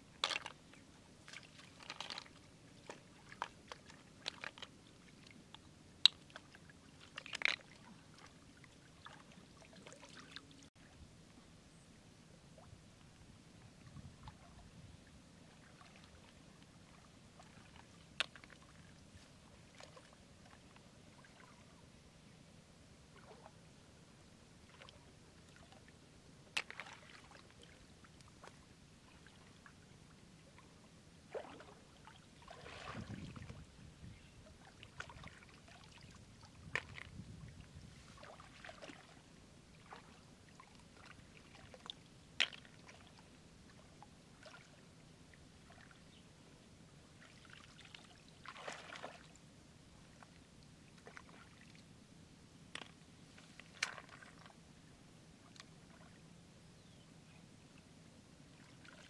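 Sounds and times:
hands sloshing through muddy water: 0:26.6 - 0:27.8, 0:31.3 - 0:33.7, 0:37.9 - 0:43.2, 0:47.2 - 0:49.4, 0:52.8 - 0:54.5
short splashes: 0:32.4 - 0:33.5.

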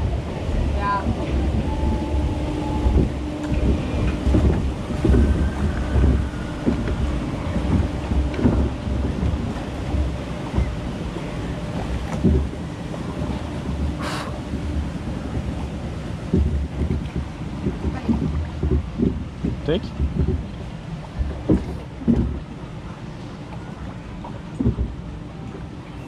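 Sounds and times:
water sloshing around a boat: 0:00.0 - 0:26.0
wind buffeting the microphone: 0:00.0 - 0:26.0
dull knocks: 0:01.1 - 0:10.8, 0:11.8 - 0:12.6, 0:13.7 - 0:22.5, 0:24.6 - 0:25.0.

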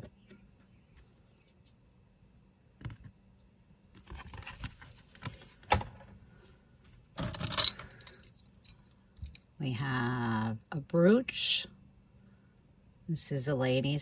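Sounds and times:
jewelry clinking and rattling: 0:07.2 - 0:09.5.

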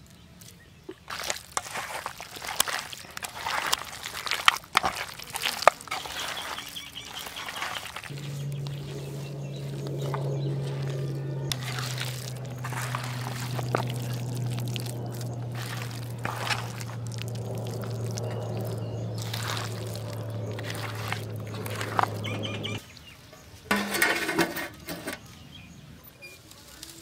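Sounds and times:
hands squelching in batter: 0:00.9 - 0:22.8
steady low hum: 0:08.1 - 0:22.8
steel plate clattering: 0:23.7 - 0:25.2.

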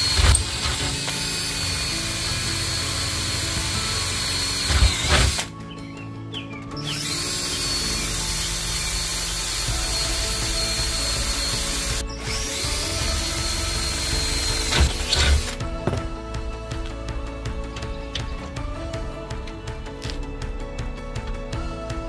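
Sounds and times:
cordless drill boring metal: 0:00.0 - 0:05.5, 0:06.8 - 0:15.6.

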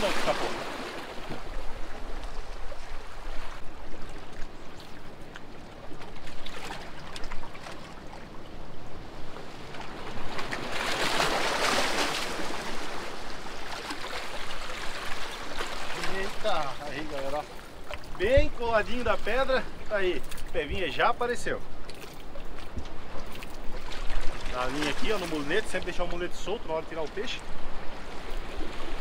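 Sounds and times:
waves washing around rocks: 0:00.0 - 0:29.0.

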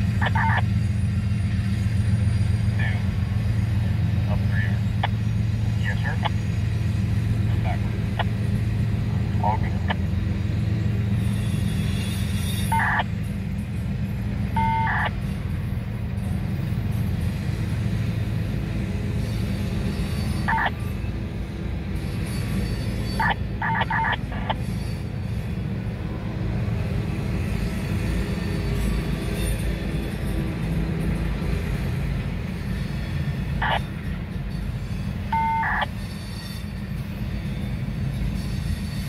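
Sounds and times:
freight cars rumbling past: 0:00.0 - 0:39.0
short high wheel squeals: 0:10.8 - 0:13.3, 0:19.2 - 0:21.0, 0:22.0 - 0:25.6, 0:28.4 - 0:30.4, 0:32.7 - 0:39.0.

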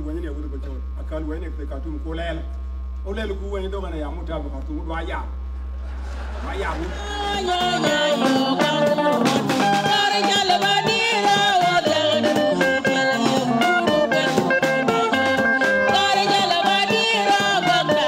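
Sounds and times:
live band dance tune: 0:06.2 - 0:18.0.

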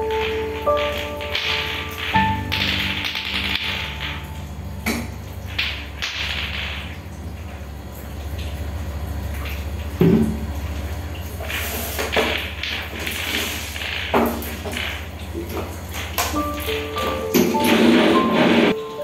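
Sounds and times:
plastic balls knocking on tile floor: 0:00.0 - 0:04.2, 0:05.6 - 0:07.0
steady low hum: 0:00.0 - 0:16.7.

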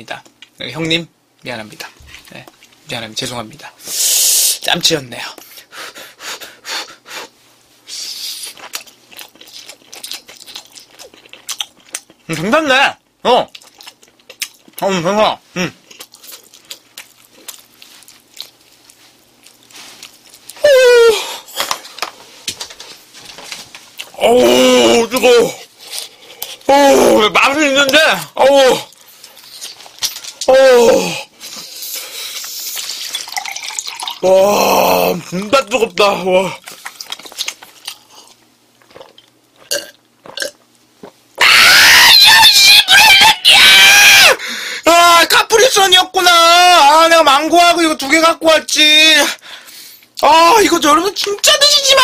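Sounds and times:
chewing and mouth sounds: 0:08.3 - 0:12.5, 0:13.4 - 0:14.8, 0:15.8 - 0:20.6, 0:31.5 - 0:34.2, 0:36.6 - 0:41.3
man's loud cry: 0:20.6 - 0:21.3, 0:24.2 - 0:25.6, 0:30.5 - 0:31.3, 0:41.4 - 0:44.4
man crying out in disgust: 0:20.6 - 0:21.4.

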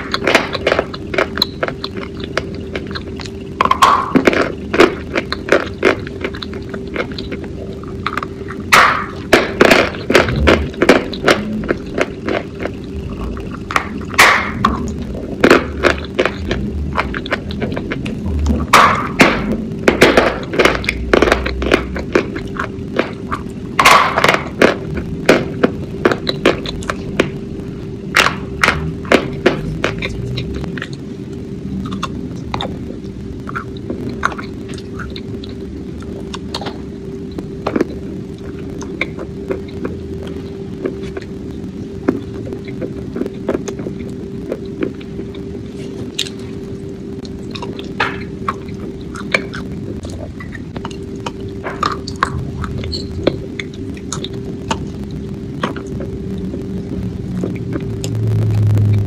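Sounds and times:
crisp crunching and chewing: 0:00.0 - 0:27.5, 0:28.1 - 0:59.0
steady hum: 0:00.0 - 0:59.0
wet chewing and mouth smacks: 0:00.1 - 0:19.2, 0:31.8 - 0:41.3, 0:47.2 - 0:56.6.

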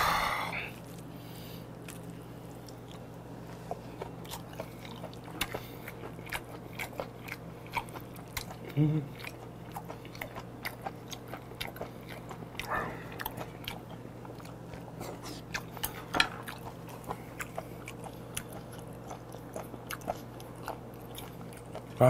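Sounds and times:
wet chewing: 0:00.8 - 0:22.0.

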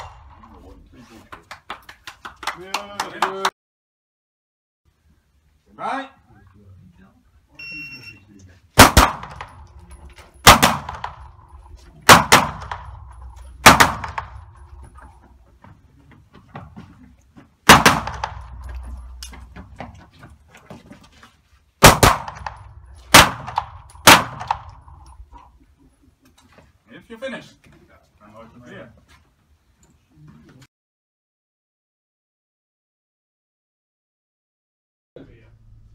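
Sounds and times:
rifle shots echoing indoors: 0:08.8 - 0:09.6, 0:10.4 - 0:11.5, 0:12.1 - 0:14.7, 0:17.7 - 0:18.8, 0:21.8 - 0:24.9.

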